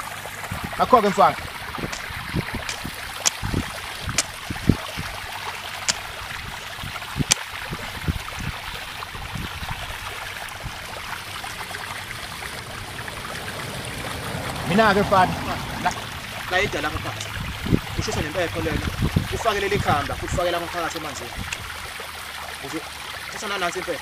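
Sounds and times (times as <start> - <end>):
sharp clicks: 2.7 - 3.4
machete chopping into muddy ground: 2.7 - 3.5.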